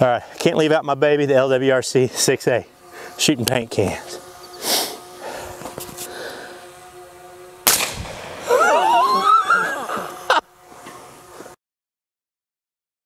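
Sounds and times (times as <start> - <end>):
rifle shot: 7.6 - 8.4
man whooping: 8.4 - 10.4.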